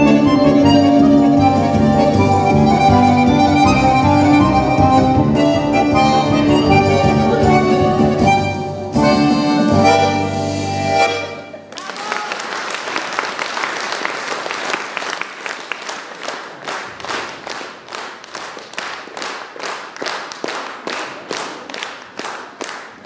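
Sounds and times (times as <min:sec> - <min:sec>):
audience clapping: 0:11.7 - 0:23.0.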